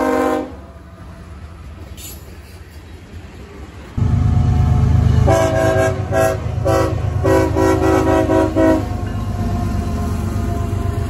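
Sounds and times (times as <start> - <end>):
locomotive air horn blasts: 0.0 - 0.6, 5.2 - 9.0
passing train rumble: 0.0 - 11.0.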